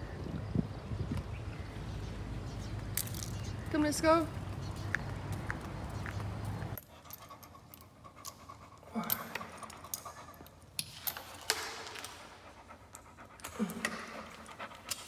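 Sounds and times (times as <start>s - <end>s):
outdoor background noise: 0.0s - 15.0s
dog panting: 6.8s - 10.8s, 12.1s - 15.0s
metal collar clinks: 6.8s - 11.7s.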